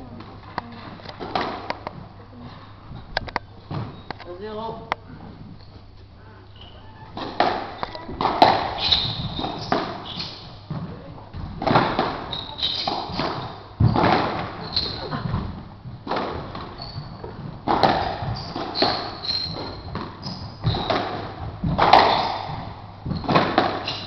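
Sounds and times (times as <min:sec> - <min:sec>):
squash ball hitting rackets and walls: 0:00.0 - 0:04.2, 0:07.0 - 0:24.0
shoes squeaking on wooden floor: 0:00.0 - 0:24.0.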